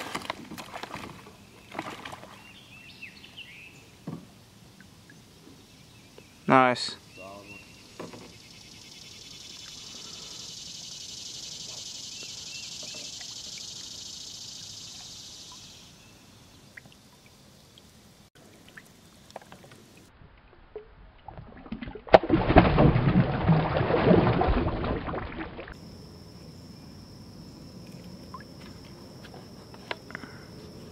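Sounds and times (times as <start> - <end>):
steady high-pitched hiss: 2.6 - 20.1, 25.8 - 30.9.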